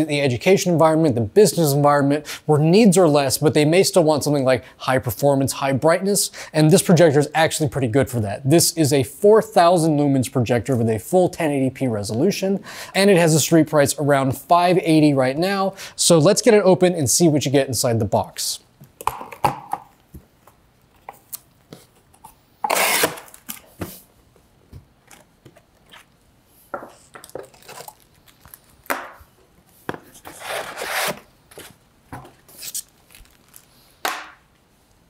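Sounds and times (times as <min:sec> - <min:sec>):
plastic bags rustling: 0:32.5 - 0:34.0.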